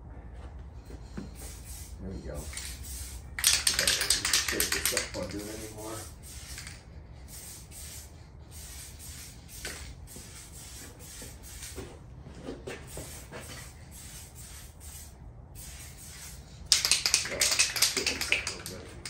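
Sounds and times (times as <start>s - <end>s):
spray paint can hissing: 1.2s - 11.8s, 12.9s - 19.0s
spray can rattling: 1.4s - 11.8s, 12.9s - 19.0s.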